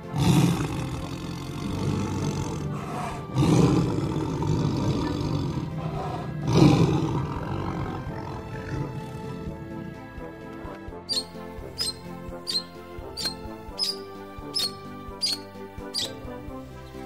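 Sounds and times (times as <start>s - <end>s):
tiger roaring: 0.0s - 9.7s.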